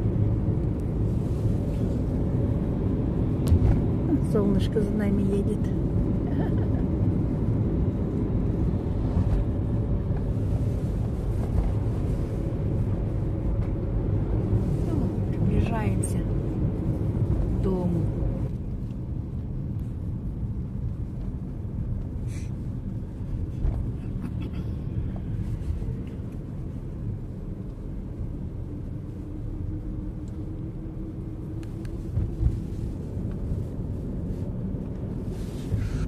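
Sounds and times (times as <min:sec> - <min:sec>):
car engine and road rumble: 0:00.0 - 0:36.0.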